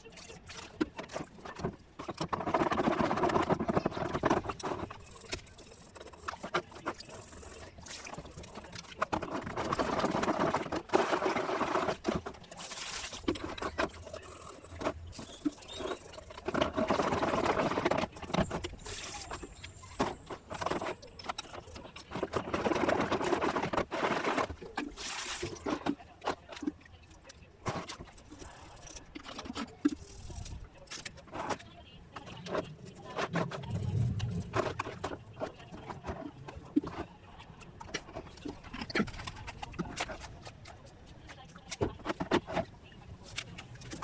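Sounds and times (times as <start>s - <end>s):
toothbrush scrubbing metal: 0.0s - 25.8s
liquid sloshing and splashing: 0.0s - 27.0s.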